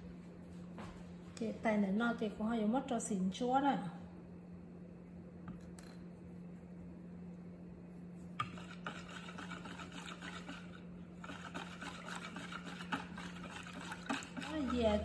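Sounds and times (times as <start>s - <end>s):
whisk stirring batter in a bowl: 8.2s - 15.0s.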